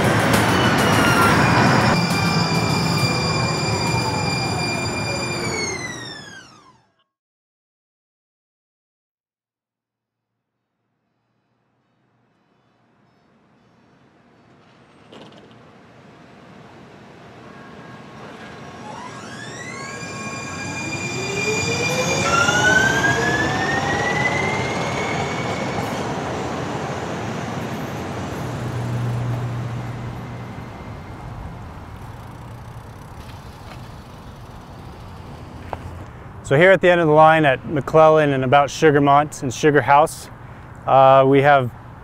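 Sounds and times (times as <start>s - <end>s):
wheels rumbling on rails: 0.0s - 6.8s, 14.4s - 39.5s
streetcar motor whine: 0.0s - 7.0s, 11.8s - 39.5s.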